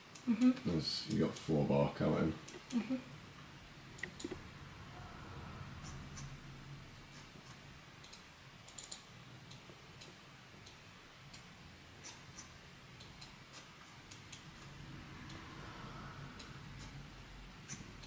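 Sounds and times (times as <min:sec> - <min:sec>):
low steady hum: 0:00.0 - 0:18.0
mouse and keyboard clicking: 0:08.0 - 0:10.8.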